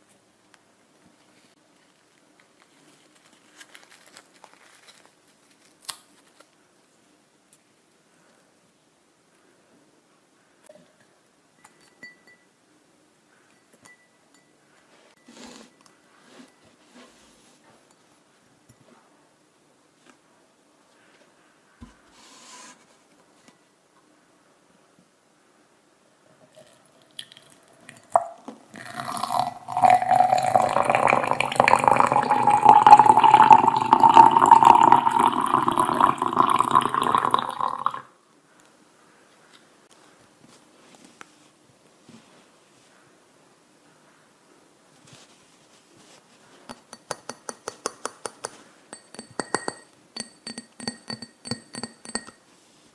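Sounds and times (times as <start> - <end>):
soft rustle: 1.0 - 7.6, 14.7 - 19.2, 19.9 - 23.6, 38.6 - 43.2, 44.0 - 46.7, 52.4 - 52.9
water pouring into glass: 26.5 - 38.1
light taps on a glass: 46.7 - 52.4.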